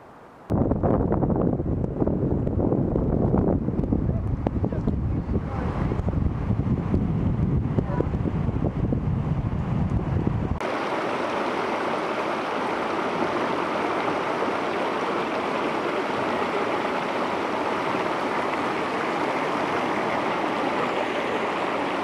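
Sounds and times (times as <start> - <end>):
wind rumble on microphone: 0.5 - 10.6
river water rushing over stones: 10.6 - 22.0.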